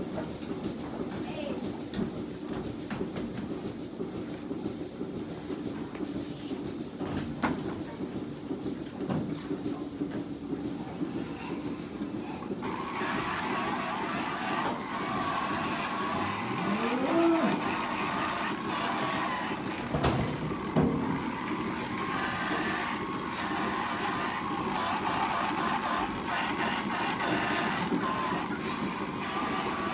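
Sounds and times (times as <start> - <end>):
electric brush motor running: 12.6 - 29.9
cow mooing: 16.2 - 17.8.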